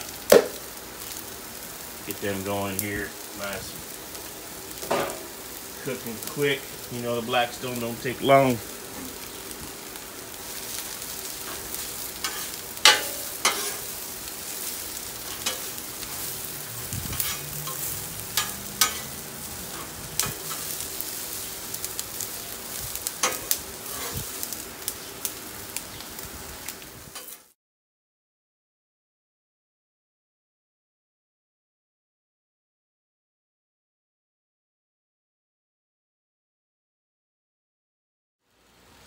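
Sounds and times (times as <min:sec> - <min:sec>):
vegetables sizzling on a griddle: 0:00.0 - 0:27.6, 0:38.5 - 0:39.0
metal spatula scraping griddle: 0:10.5 - 0:24.6.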